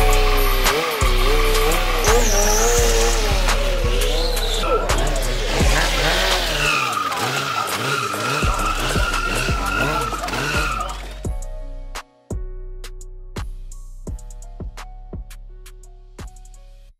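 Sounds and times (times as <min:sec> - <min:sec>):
motorcycle tyre squealing: 0:00.0 - 0:11.3
motorcycle engine running: 0:00.0 - 0:11.4
music with steady beat: 0:00.0 - 0:16.9.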